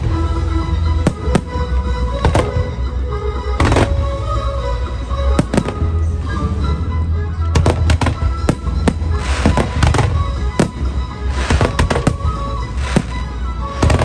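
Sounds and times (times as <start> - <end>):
music playing: 0.0 - 14.0
fireworks bangs: 1.0 - 2.8, 3.6 - 4.1, 7.5 - 14.0.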